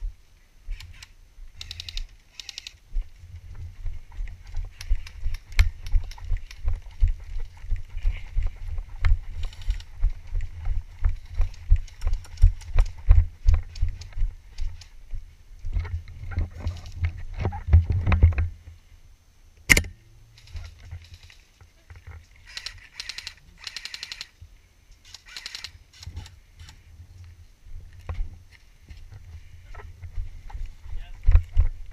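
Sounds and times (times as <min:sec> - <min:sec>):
fast rattles of clicks: 0:00.8 - 0:02.8, 0:11.3 - 0:14.9, 0:22.4 - 0:24.4, 0:25.0 - 0:26.3
muffled footsteps on dirt: 0:02.8 - 0:18.8, 0:26.6 - 0:31.9
single sharp click: 0:19.6 - 0:20.0.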